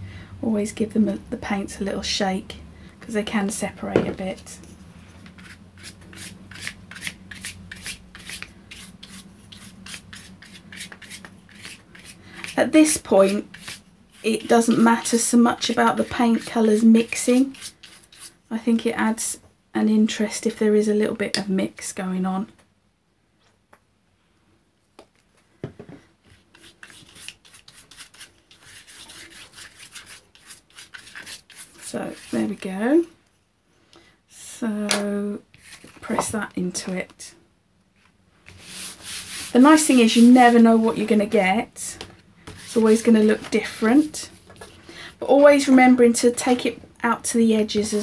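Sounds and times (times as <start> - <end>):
paintbrush scrubbing on card: 5.2 - 18.4, 26.3 - 32.6, 38.5 - 40.9, 42.5 - 44.8
paintbrush scratching across card: 26.3 - 32.6, 38.5 - 40.6, 42.5 - 44.0.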